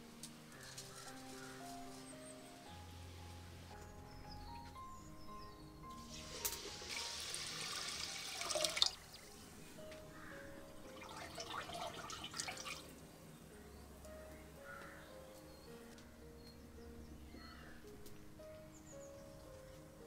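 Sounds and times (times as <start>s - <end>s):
soft background music: 0.0s - 20.0s
water pouring into a clay pot: 6.0s - 9.4s, 10.9s - 13.0s
hands washing rice in water: 11.0s - 12.9s.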